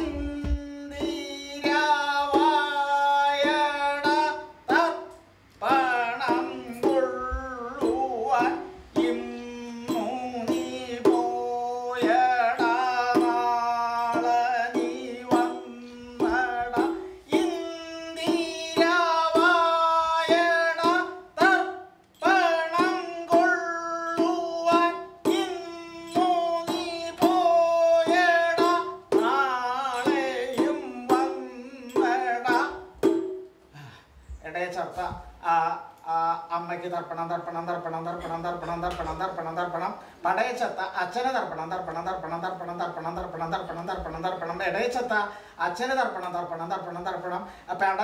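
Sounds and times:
copper pot drum played by hand: 0.0 - 5.1, 6.2 - 17.6, 22.8 - 33.5.

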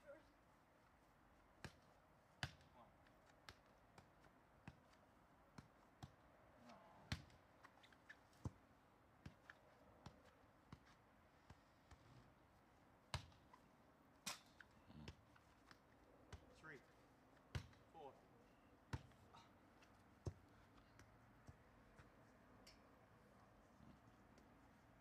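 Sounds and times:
soccer ball kicks: 1.6 - 6.2, 7.1 - 7.5, 13.1 - 13.4, 17.5 - 17.8, 18.9 - 19.2, 20.2 - 22.1.

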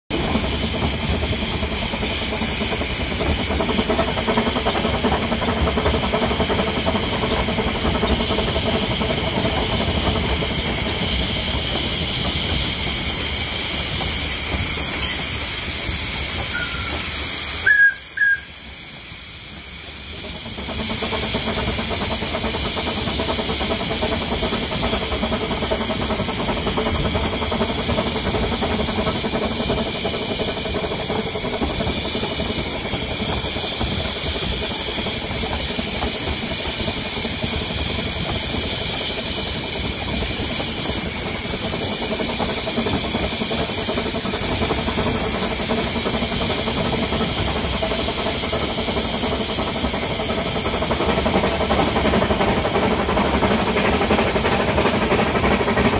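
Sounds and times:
steam locomotive chuffing: 0.0 - 55.9
steam hiss: 0.1 - 55.9.

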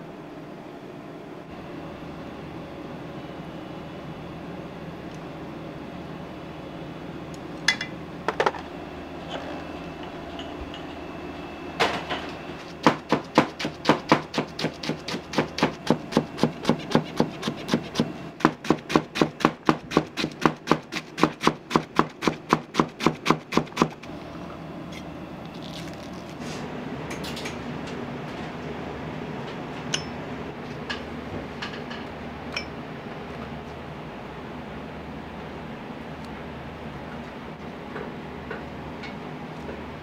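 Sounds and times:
knife chopping on board: 12.7 - 24.0.

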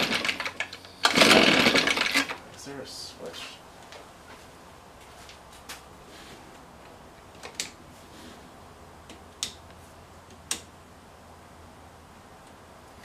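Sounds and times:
sharp plastic clicks: 10.3 - 10.7.

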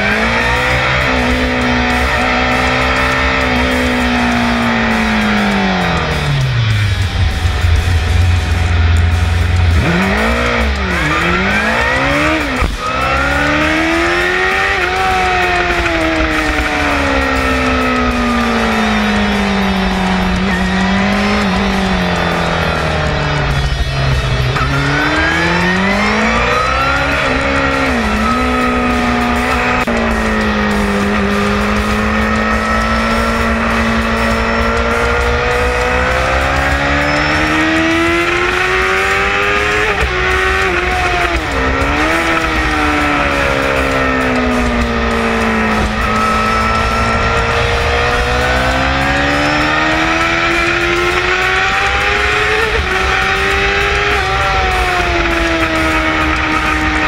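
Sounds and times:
motorcycle engine at racing speed: 0.0 - 57.0.

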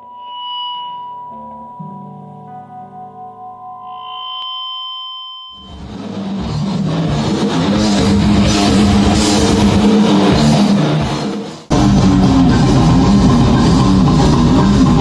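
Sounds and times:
ringing tones: 0.0 - 5.8
heavy metal electric guitar: 5.7 - 15.0.

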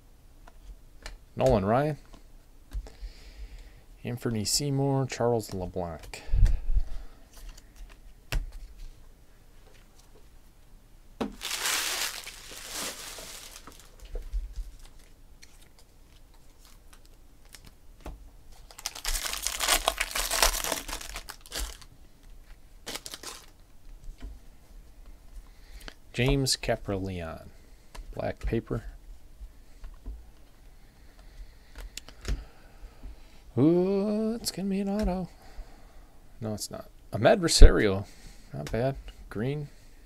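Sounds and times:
foil wrapper crinkling and tearing: 11.4 - 14.1, 18.5 - 21.9, 22.8 - 23.6.

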